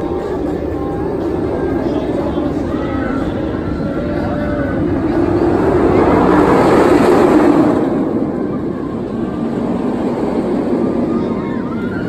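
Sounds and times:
roller coaster train roaring: 0.0s - 12.0s.

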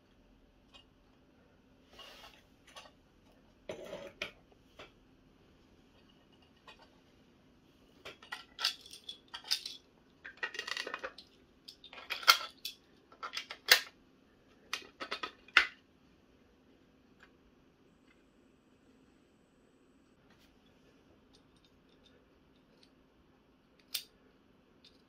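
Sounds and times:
plastic toy parts clicking: 8.1s - 13.9s, 23.8s - 24.1s.

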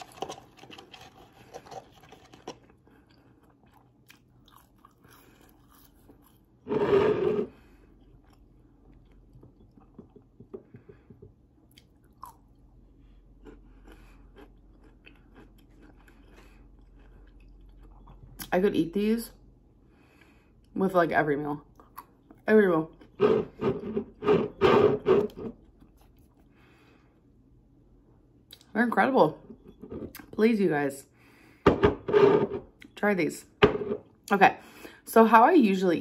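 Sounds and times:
chewing crunchy fries: 0.0s - 6.6s, 7.5s - 10.5s, 11.6s - 18.6s, 25.3s - 26.6s.

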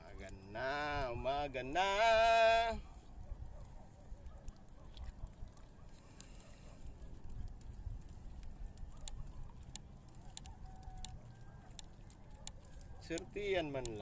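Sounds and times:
sharp ticks: 7.3s - 14.0s.

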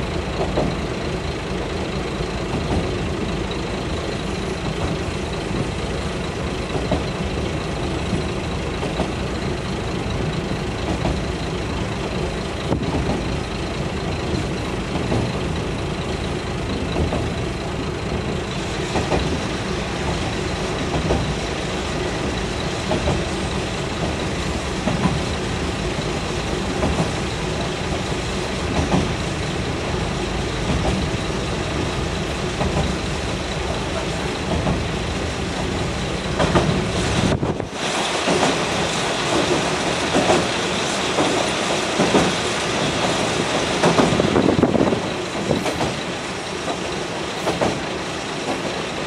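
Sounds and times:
train engine and wheel rumble: 0.0s - 49.0s
hiss: 18.4s - 49.0s.

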